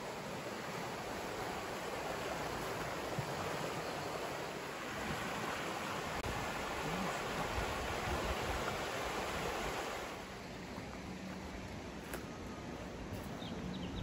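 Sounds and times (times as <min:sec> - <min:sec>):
fast-flowing water rushing: 0:00.0 - 0:11.1.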